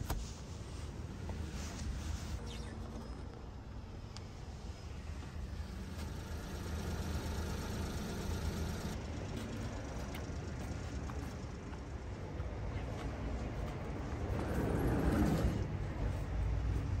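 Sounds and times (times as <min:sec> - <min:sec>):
vehicle engine idling: 0:05.2 - 0:11.8.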